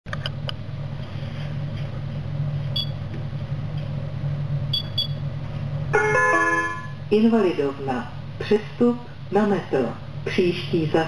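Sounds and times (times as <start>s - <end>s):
steady low hum in tram cab: 0.1s - 11.0s
short electronic beeps: 2.8s - 3.0s, 4.7s - 5.2s.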